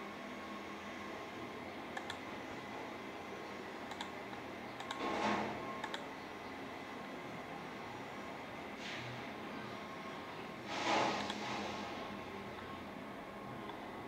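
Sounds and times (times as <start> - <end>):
steady background hum: 0.0 - 14.0
computer mouse clicks: 2.0 - 2.2, 3.9 - 5.2, 5.8 - 6.1.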